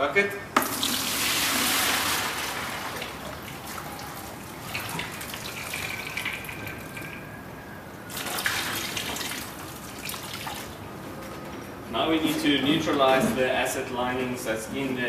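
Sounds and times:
liquid pouring and splashing: 0.6 - 7.2, 8.1 - 10.8.

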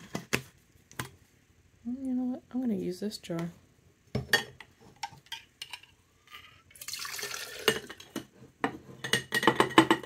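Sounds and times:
liquid poured into glass jar: 6.8 - 7.8.

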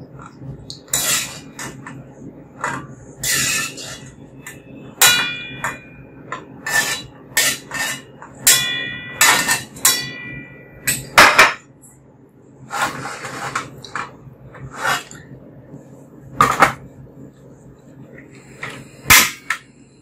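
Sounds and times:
wire skimmer clanking on metal wok: 6.7 - 11.1.

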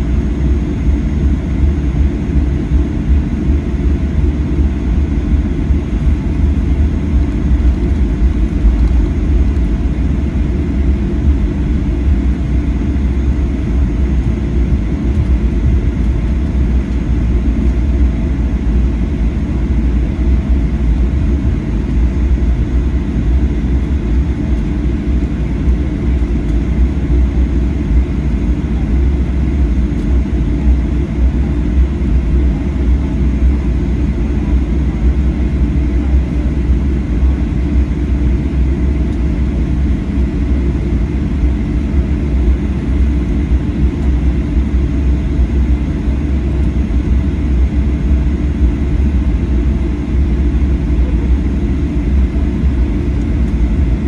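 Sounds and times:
cabin rumble and hum: 0.0 - 54.0.

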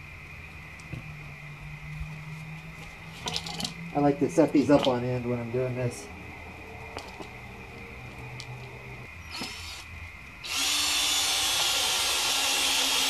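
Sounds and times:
cordless drill driving screw: 9.3 - 13.0.

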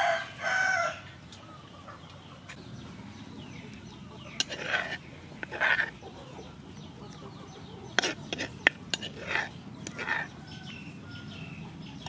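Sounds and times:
spoon scraping bowl: 4.3 - 6.0, 7.9 - 10.8.

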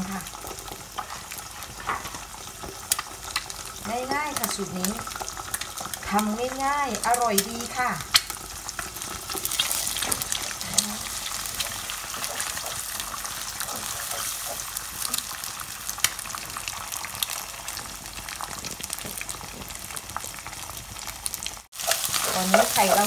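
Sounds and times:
eggs sizzling in hot oil: 0.0 - 23.0
wooden spatula scraping wok: 8.8 - 15.4, 21.8 - 23.0.

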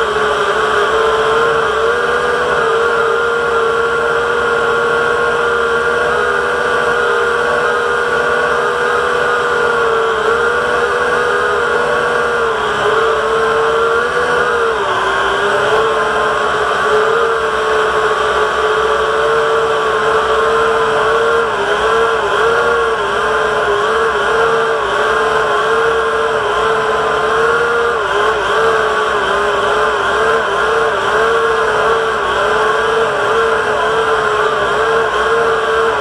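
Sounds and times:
drone propellers whining: 0.0 - 36.0.

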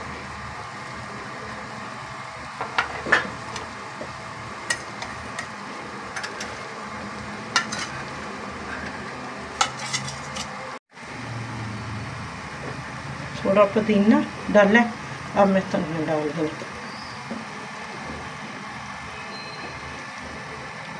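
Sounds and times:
metal spoon scraping a metal pan: 6.1 - 6.6, 7.5 - 10.6.

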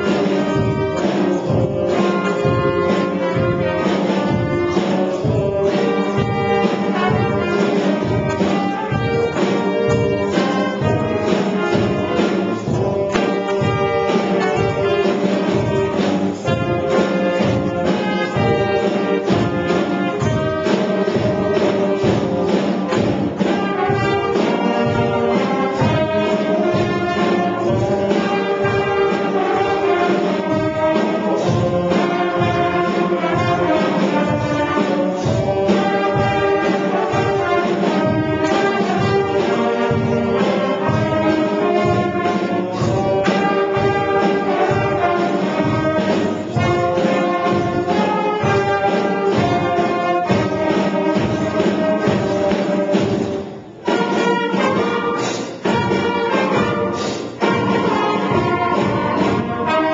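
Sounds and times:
concert band playing: 0.0 - 59.9.

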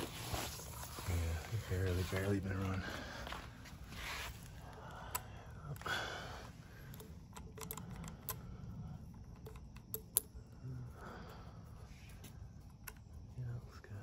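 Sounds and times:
fingers clicking and tapping metal: 6.9 - 8.4, 9.2 - 10.4.

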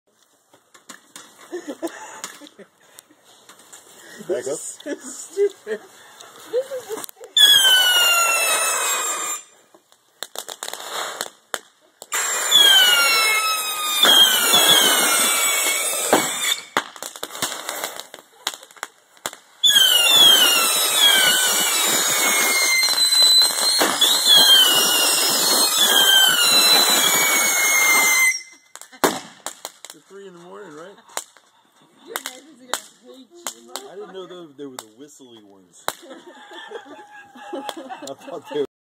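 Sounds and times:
firework pops and crackling: 0.2 - 36.3, 37.6 - 38.2
whistling bottle rockets: 7.3 - 9.6, 10.7 - 18.8, 19.6 - 29.8.

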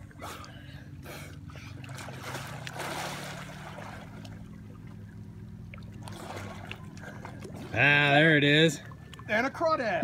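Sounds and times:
water sloshing: 0.0 - 10.0
diving splash: 1.5 - 7.8.

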